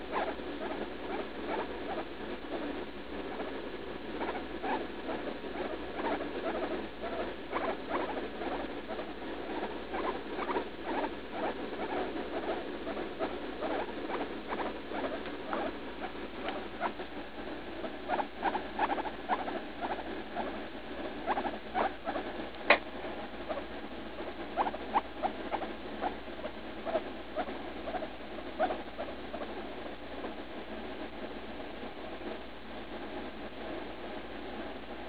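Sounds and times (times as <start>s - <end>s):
guinea pig squeaking: 0.0s - 3.5s, 4.2s - 17.0s, 17.8s - 22.8s, 24.2s - 29.6s.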